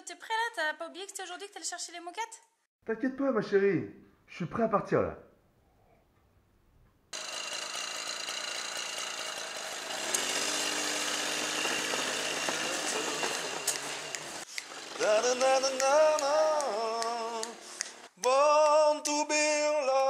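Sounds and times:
small two-stroke engine running: 7.2s - 15.4s.

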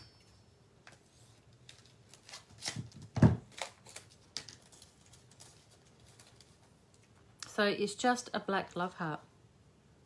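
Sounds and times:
paper rustling: 0.9s - 7.1s.

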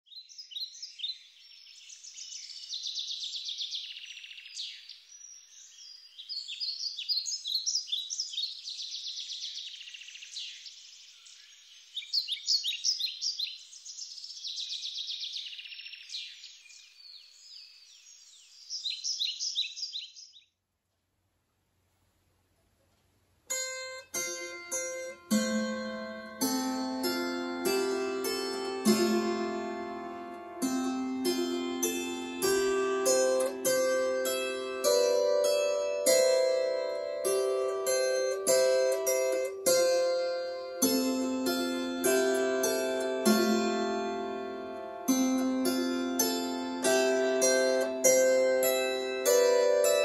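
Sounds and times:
songbird chirps and trills: 0.0s - 20.6s, 23.5s - 50.0s
harp plucking: 23.5s - 50.0s.

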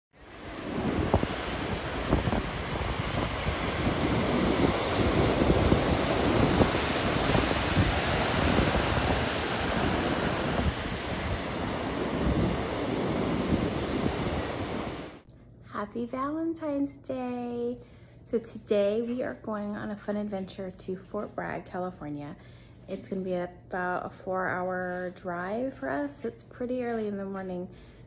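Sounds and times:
surf breaking on rocky shore: 0.2s - 15.2s
wind rumbling on microphone: 0.2s - 15.2s.

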